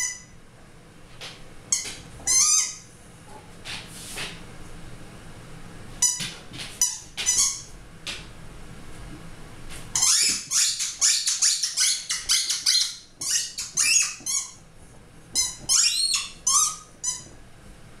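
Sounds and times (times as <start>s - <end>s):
rubber squeaky ball squeaking: 0.0s - 0.3s, 1.7s - 2.8s, 6.0s - 7.7s, 10.0s - 14.6s, 15.3s - 17.4s.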